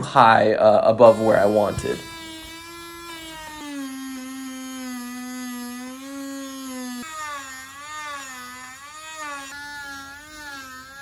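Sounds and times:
rotary tool whining: 0:01.0 - 0:11.0.

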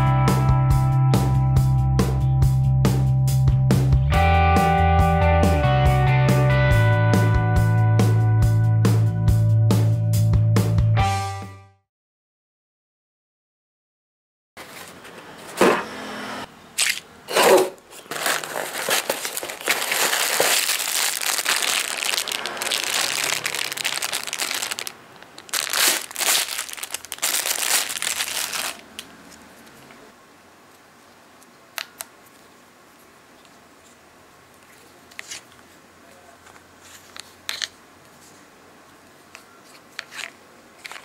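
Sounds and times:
plastic bag crinkling: 0:16.8 - 0:29.0.

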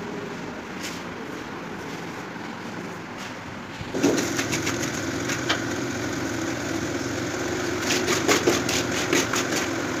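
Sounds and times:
steady motor hum: 0:03.7 - 0:10.0
trowel scraping metal pan: 0:07.8 - 0:09.7.

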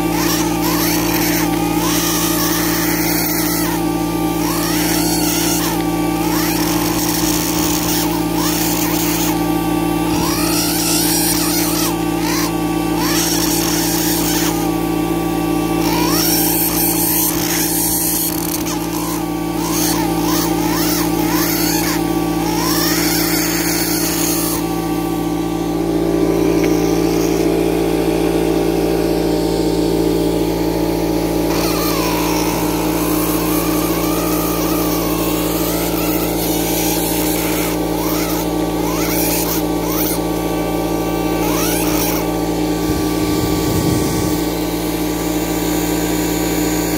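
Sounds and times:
engraving scribe buzzing: 0:00.0 - 0:46.9
higher wavering whine: 0:18.2 - 0:46.9.

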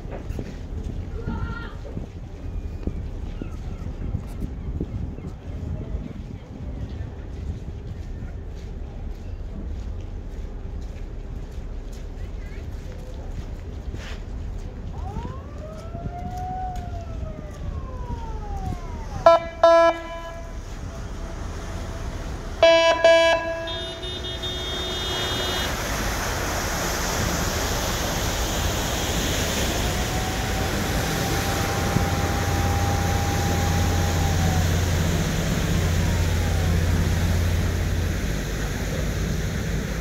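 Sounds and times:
low engine hum: 0:00.0 - 0:40.0
rushing water: 0:07.3 - 0:40.0
siren wailing: 0:15.0 - 0:25.6, 0:29.7 - 0:37.7
short loud honks: 0:19.3 - 0:20.6, 0:22.6 - 0:25.8.

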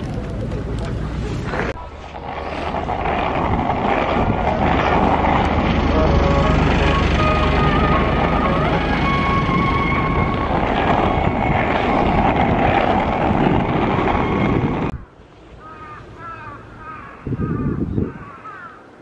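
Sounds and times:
skateboard wheels rolling on asphalt: 0:00.0 - 0:15.0
wind buffeting microphone: 0:00.0 - 0:15.0, 0:16.8 - 0:18.6
gust of wind: 0:02.1 - 0:05.9, 0:08.0 - 0:15.0, 0:17.2 - 0:18.3
birds calling: 0:13.9 - 0:19.0.

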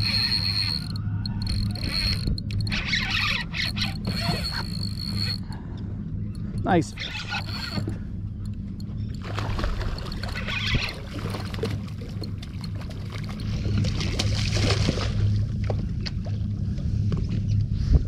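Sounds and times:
boat engine idling: 0:00.0 - 0:17.7
water splashing: 0:09.2 - 0:15.4.

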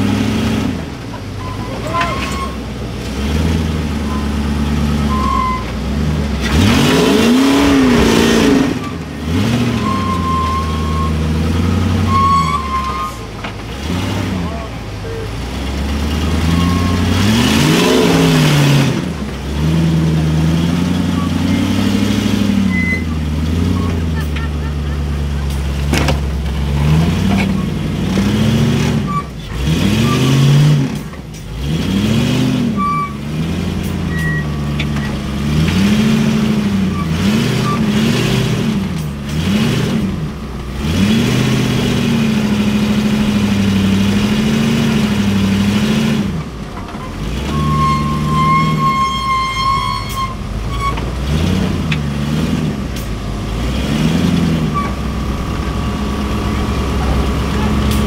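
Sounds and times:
buggy engine revving: 0:00.0 - 0:58.0
high whistle-like tone: 0:09.8 - 0:11.2, 0:12.0 - 0:13.2, 0:47.5 - 0:51.0.

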